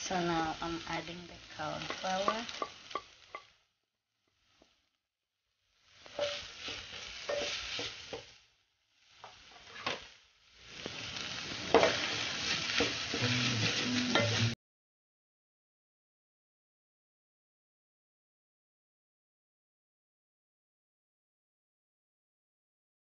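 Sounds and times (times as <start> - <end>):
vegetables sizzling in a pan: 0.0 - 14.6
wooden spoon stirring and scraping: 1.6 - 3.4, 5.9 - 8.4, 9.1 - 14.6
spoon knocking against pan: 14.1 - 14.5.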